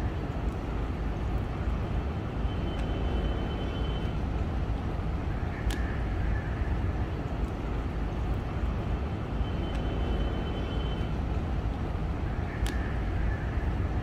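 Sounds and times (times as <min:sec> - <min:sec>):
low city rumble: 0:00.0 - 0:14.0.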